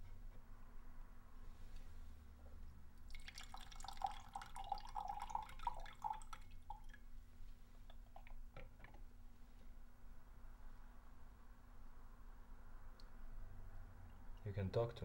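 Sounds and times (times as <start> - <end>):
tea pouring into glass pitcher: 3.0 - 7.0.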